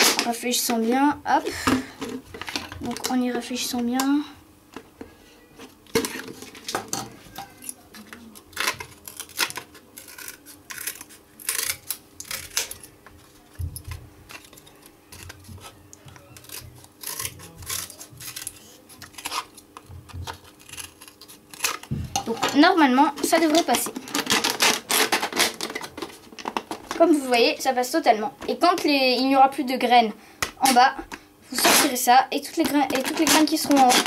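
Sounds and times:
scissors snipping wood veneer: 16.3 - 19.4.

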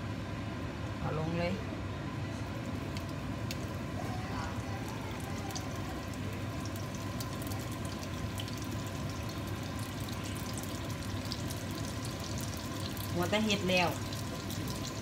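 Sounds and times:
oil sizzling with crackling pops: 2.5 - 15.0.

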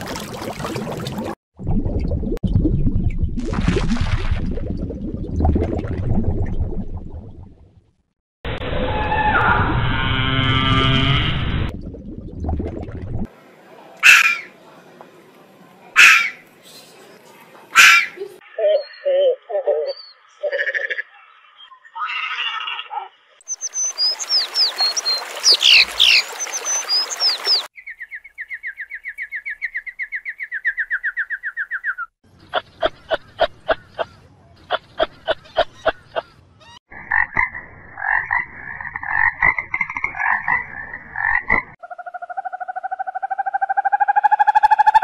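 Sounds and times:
rising drawn-out animal call: 8.5 - 11.7, 41.8 - 45.0
pulsed croaking: 9.6 - 11.8.

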